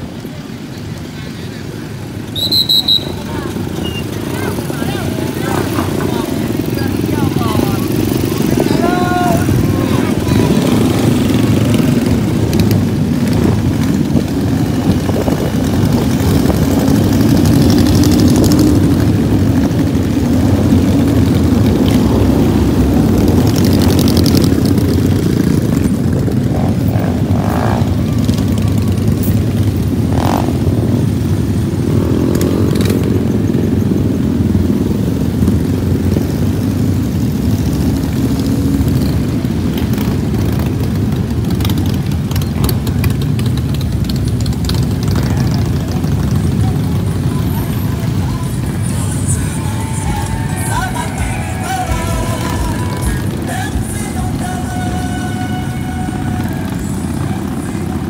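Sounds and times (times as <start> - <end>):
motorcycles riding past: 0.0 - 58.0
motorcycle revving past: 3.4 - 48.2.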